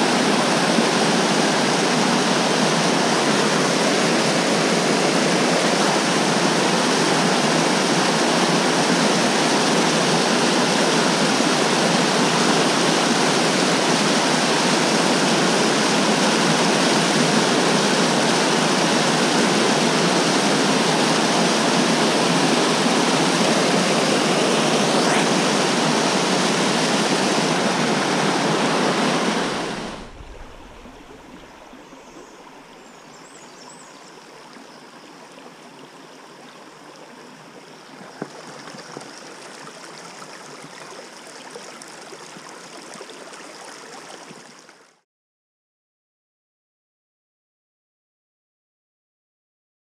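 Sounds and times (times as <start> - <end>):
waterfall pouring into pool: 0.0 - 32.7, 38.0 - 45.0
shallow stream rippling: 0.0 - 45.0.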